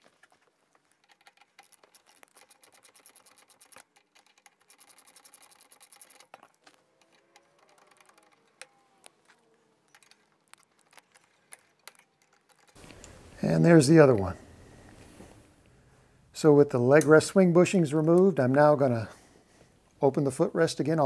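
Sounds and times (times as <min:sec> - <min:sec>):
metal tool clicking and scraping: 0:00.8 - 0:13.2.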